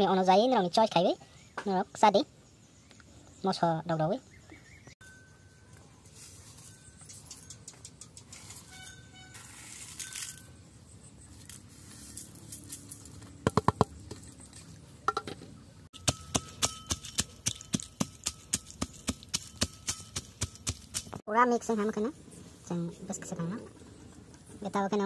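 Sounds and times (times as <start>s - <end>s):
pestle pounding in metal bowl: 16.0s - 21.2s.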